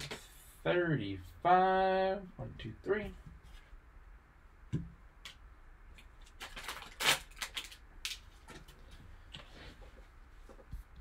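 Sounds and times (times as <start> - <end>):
packaging crinkling: 6.2 - 8.4.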